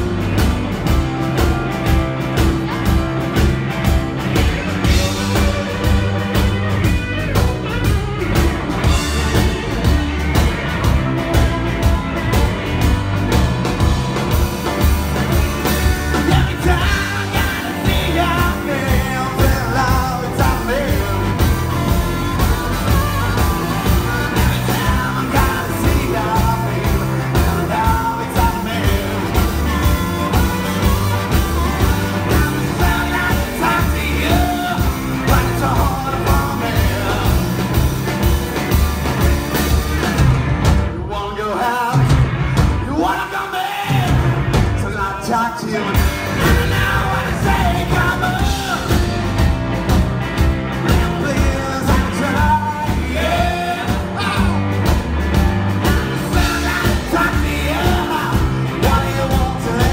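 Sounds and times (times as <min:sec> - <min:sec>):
blues-rock band playing: 0:00.0 - 0:59.9
man singing: 0:15.4 - 0:38.0, 0:41.0 - 0:49.3, 0:50.8 - 0:54.8, 0:55.8 - 0:59.9.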